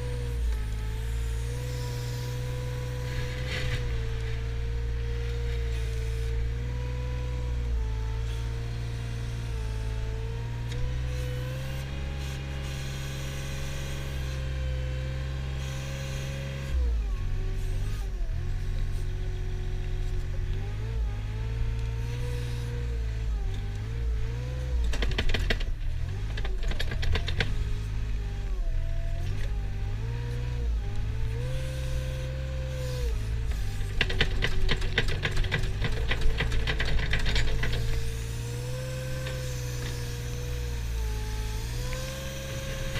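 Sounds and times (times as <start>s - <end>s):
loader engine and hydraulics: 0.0s - 42.9s
rattling clatter: 24.8s - 27.8s, 33.5s - 38.4s.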